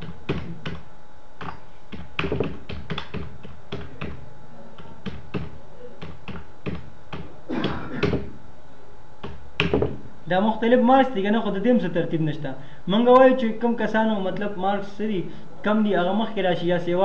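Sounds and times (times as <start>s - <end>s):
computer keyboard typing: 1.4s - 4.2s.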